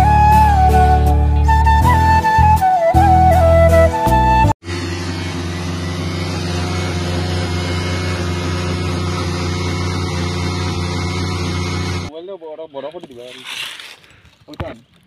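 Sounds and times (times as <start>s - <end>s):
motorcycle engines revving: 4.6s - 12.1s.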